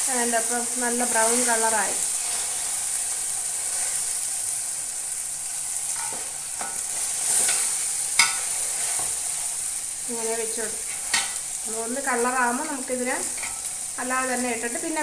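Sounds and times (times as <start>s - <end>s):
chicken sizzling in a pan: 0.0s - 15.0s
spatula and tongs scraping pan: 5.8s - 9.6s, 10.6s - 13.9s.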